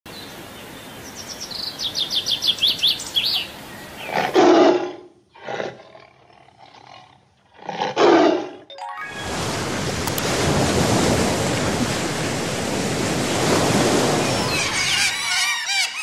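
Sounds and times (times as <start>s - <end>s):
songbird chirping: 0.1s - 4.2s
tiger roaring: 4.1s - 8.6s.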